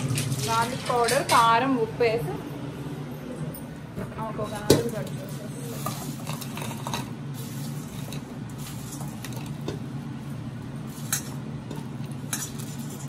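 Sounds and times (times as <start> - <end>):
fries rustling: 0.0 - 1.7, 4.4 - 13.0
fries clicking against metal bowl: 11.0 - 13.0.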